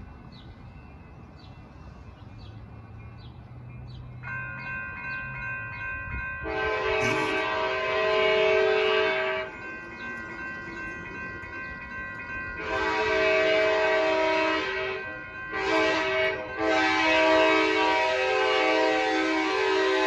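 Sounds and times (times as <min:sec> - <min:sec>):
crossing bells ringing: 0:00.0 - 0:20.0
train horn blasts: 0:06.4 - 0:09.6, 0:12.6 - 0:20.0.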